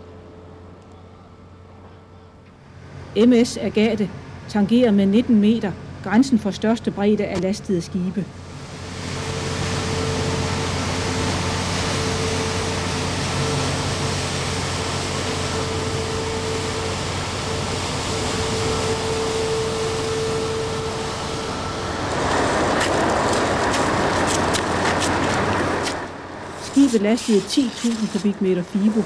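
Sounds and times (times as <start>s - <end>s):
diesel engine droning: 0.0s - 29.0s
rushing noise: 8.3s - 29.0s.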